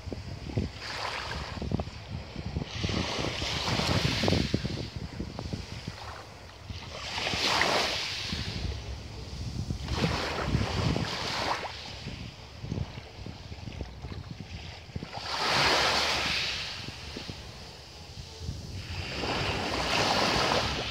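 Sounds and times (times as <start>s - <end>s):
waves washing onto pebbles: 7.0s - 12.8s, 14.8s - 20.9s
steady low rumble: 8.0s - 15.3s, 16.6s - 20.9s.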